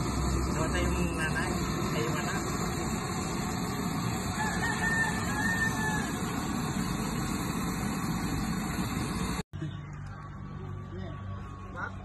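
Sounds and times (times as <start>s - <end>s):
rooster crowing: 4.1s - 6.5s.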